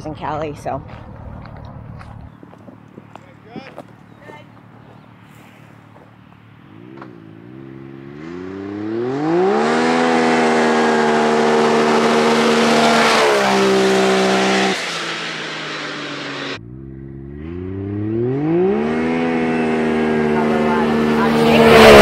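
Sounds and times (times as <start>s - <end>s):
off-road vehicle engine accelerating: 0.8s - 22.0s.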